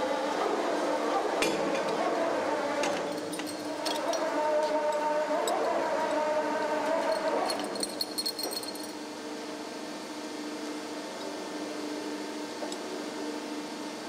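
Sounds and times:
press machinery humming: 0.0s - 14.0s
lifting chains clinking: 3.1s - 6.2s, 6.9s - 9.0s.

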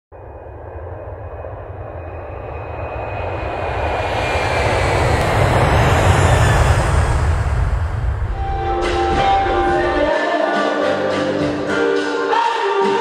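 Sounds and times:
rushing noise with deep rumble: 0.1s - 10.1s.

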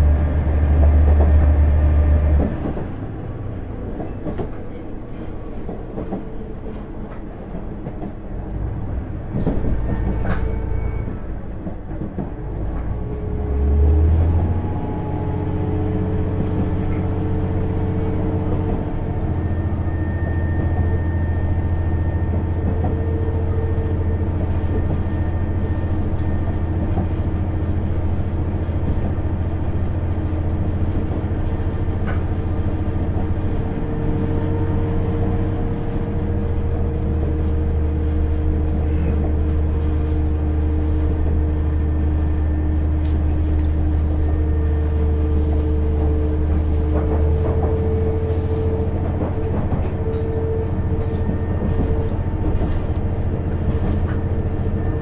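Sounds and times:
diesel railcar engine drone: 0.0s - 55.0s
rail-joint clicks: 3.8s - 8.3s, 9.3s - 13.0s, 42.9s - 54.9s.

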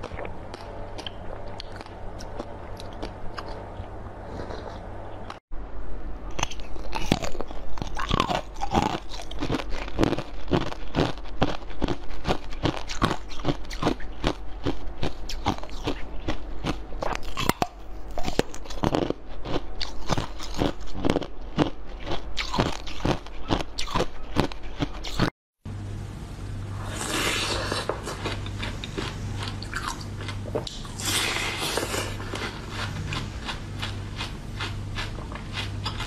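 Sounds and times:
ice crunching between teeth: 6.4s - 25.3s.

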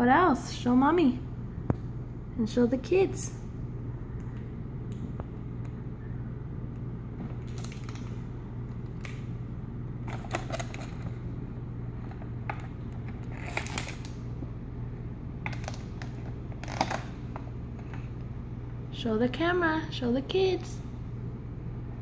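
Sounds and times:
steady low hum: 0.0s - 22.0s
plastic packaging crinkling: 7.2s - 9.3s, 10.0s - 11.3s, 12.0s - 14.2s, 15.4s - 17.4s.

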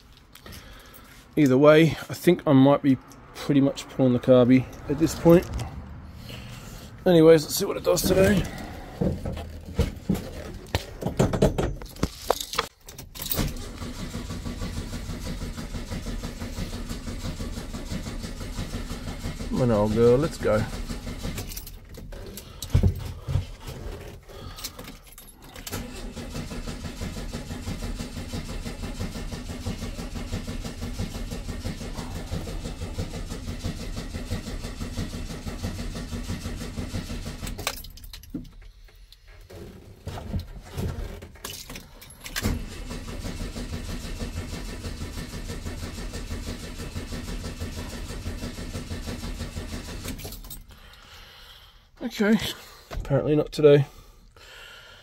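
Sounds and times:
car engine cranking on starter: 4.4s - 11.0s, 13.0s - 22.8s, 23.6s - 38.2s, 40.5s - 51.2s
keys clicking and jangling: 11.7s - 13.5s, 21.4s - 22.7s, 24.4s - 25.7s, 37.5s - 38.6s, 41.4s - 42.4s, 50.2s - 50.8s.

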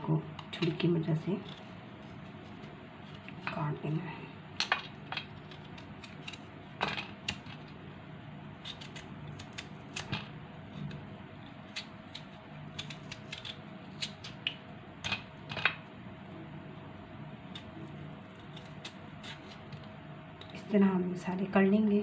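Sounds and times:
knife cutting melon rind: 0.6s - 3.7s, 4.6s - 7.8s, 8.6s - 15.3s, 17.4s - 19.9s.

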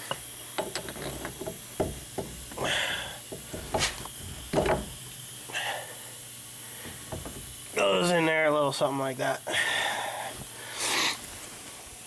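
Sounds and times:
metal parts clinking: 0.6s - 5.2s.

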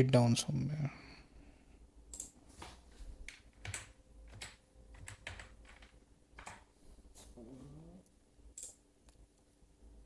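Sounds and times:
computer keyboard keys clicking: 2.1s - 2.4s, 3.2s - 6.7s.

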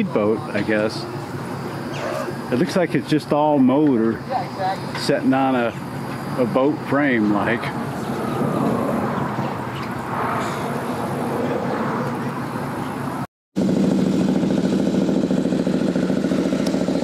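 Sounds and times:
motorcycle engine running: 0.0s - 10.1s, 12.2s - 17.0s
mechanical rumble: 5.6s - 17.0s.

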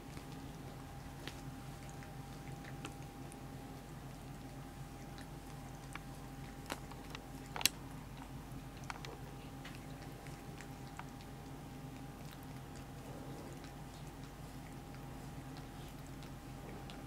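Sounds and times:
kitten chewing on finger: 0.0s - 17.0s.

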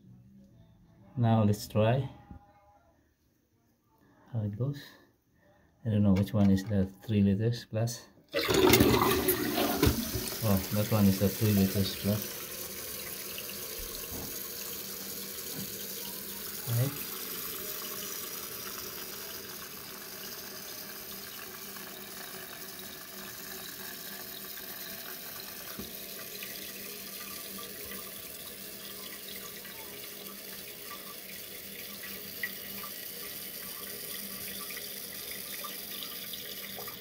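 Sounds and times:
toilet cistern refilling: 8.3s - 37.0s
water hissing through fill valve: 8.4s - 37.0s.

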